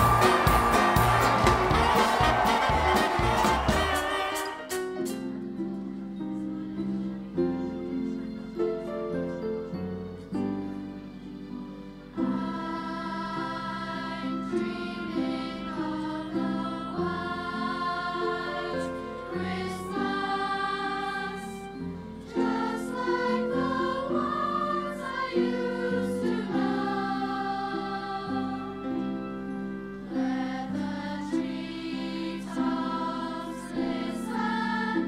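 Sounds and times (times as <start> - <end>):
children's choir singing: 0.0 - 5.0, 12.1 - 35.0
musical accompaniment: 0.0 - 35.0.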